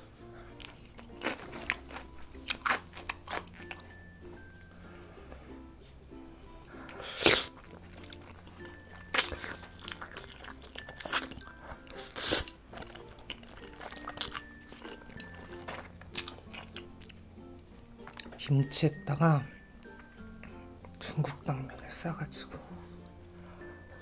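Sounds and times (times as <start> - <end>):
soft background music: 0.0 - 24.0
wet chewing: 0.4 - 4.1, 6.6 - 17.2, 17.8 - 18.4
person slurping noodles: 6.7 - 7.8, 9.2 - 12.6.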